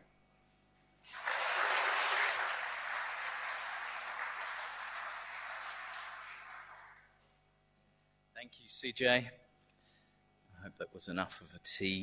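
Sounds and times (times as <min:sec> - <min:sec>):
audience applauding: 0:01.1 - 0:07.1.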